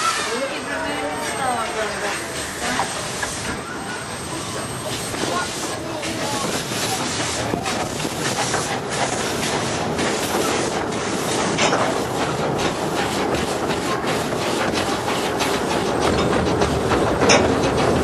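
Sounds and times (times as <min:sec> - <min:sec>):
steam train running: 0:00.0 - 0:18.0
wheels clicking on track: 0:00.0 - 0:18.0.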